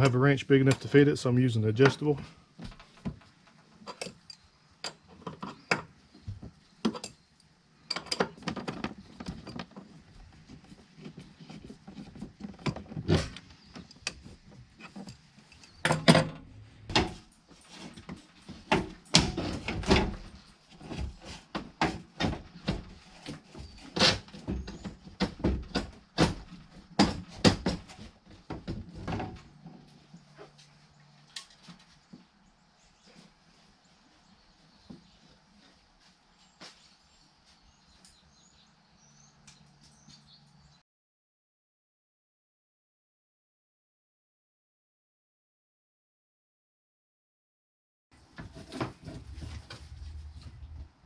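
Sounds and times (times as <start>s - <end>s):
hand tools and metal parts clanking: 0.0s - 32.2s.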